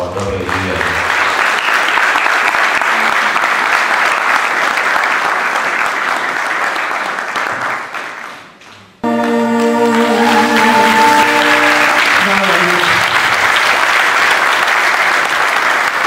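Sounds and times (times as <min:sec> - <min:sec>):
audience applauding: 0:00.0 - 0:16.0
music with held notes: 0:09.0 - 0:12.0.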